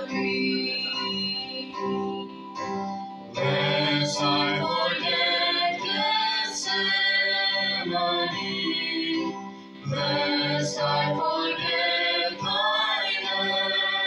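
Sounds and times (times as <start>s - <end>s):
keyboard accompaniment: 0.0s - 14.0s
people singing a hymn: 3.4s - 14.0s.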